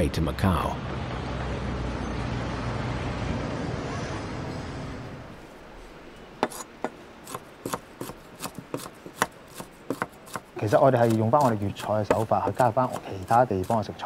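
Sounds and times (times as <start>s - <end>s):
city ambience: 0.0s - 14.0s
knife chopping on cutting board: 6.4s - 14.0s.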